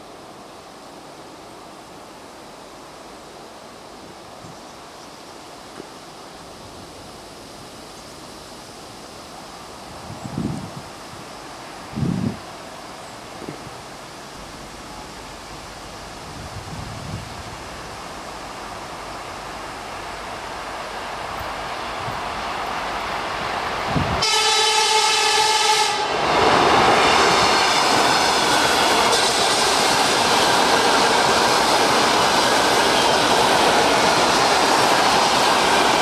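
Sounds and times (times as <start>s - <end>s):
electric train running: 18.5s - 36.0s
train horn: 24.0s - 26.2s, 27.0s - 29.9s.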